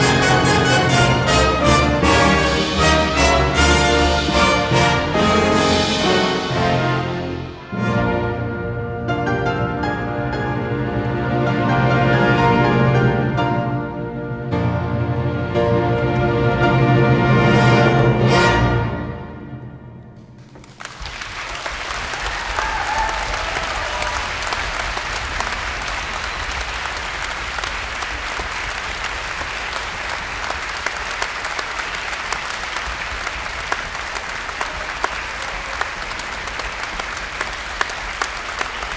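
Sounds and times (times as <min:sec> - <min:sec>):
audience applauding: 0:20.4 - 0:38.9
audience cheer: 0:20.9 - 0:28.3.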